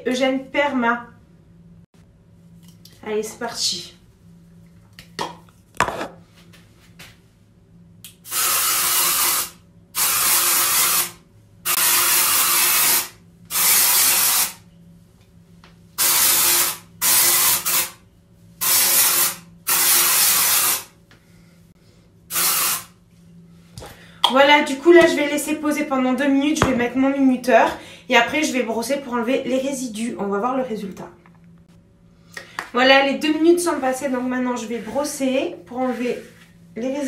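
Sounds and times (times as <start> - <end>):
aerosol spray hissing: 16.0 - 17.9, 22.3 - 22.9.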